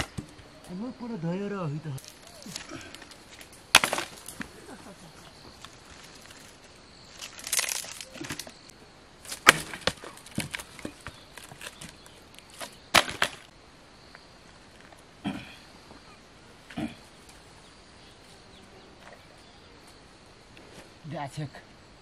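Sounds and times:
firewood cracking and knocking: 2.0s - 4.5s, 5.5s - 8.6s, 9.3s - 13.5s.

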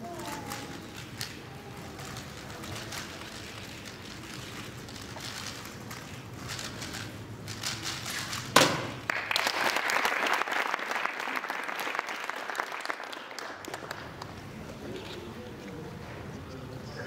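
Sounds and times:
speedcube turning rapidly: 0.0s - 8.6s
audience applause: 9.0s - 14.5s.

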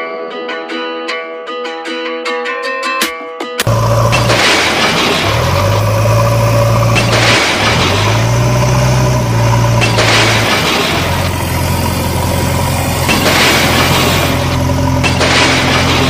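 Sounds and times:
heavy vehicle engine humming: 3.6s - 16.0s.

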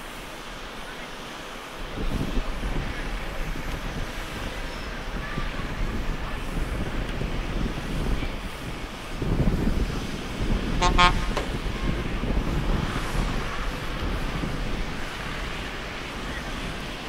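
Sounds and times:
low rumble of vehicle engines: 0.0s - 17.0s
vehicle horn tooting: 10.8s - 11.5s.

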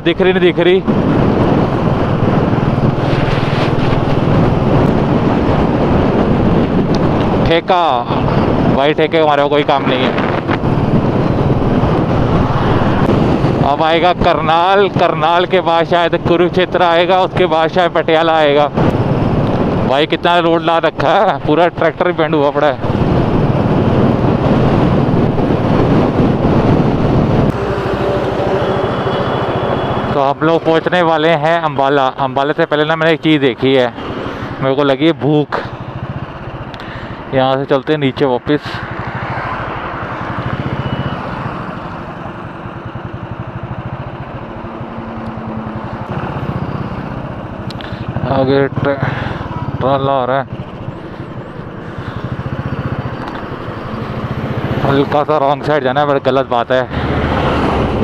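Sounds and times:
wind rushing over microphone: 0.0s - 58.0s
motorcycle engine running: 0.8s - 8.9s, 22.8s - 31.3s, 35.4s - 38.2s, 38.8s - 58.0s.

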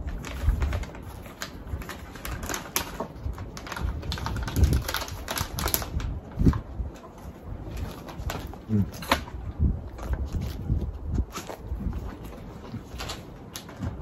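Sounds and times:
plastic pouch crinkling: 0.0s - 6.6s.

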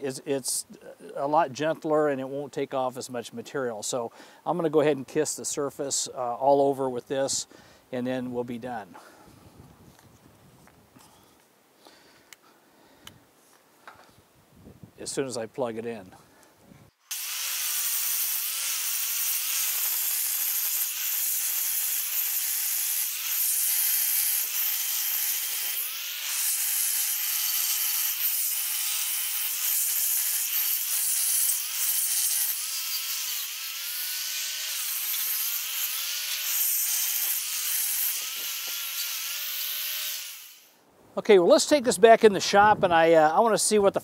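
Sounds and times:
angle grinder sanding steel: 17.1s - 40.7s.

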